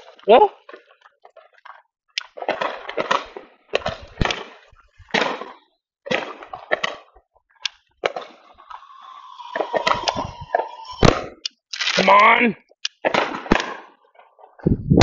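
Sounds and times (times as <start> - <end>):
firework bangs: 8.0 - 12.0, 13.0 - 14.0
firework whistle with hiss: 8.6 - 11.3.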